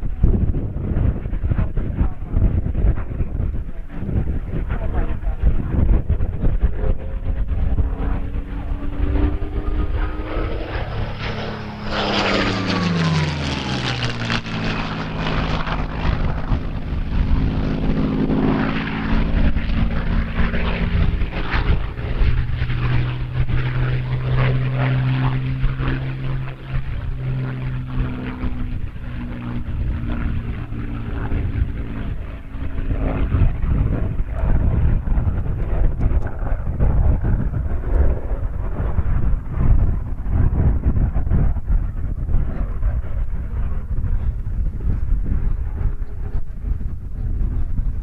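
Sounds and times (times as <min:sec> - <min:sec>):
aircraft engine droning: 0:00.0 - 0:48.0.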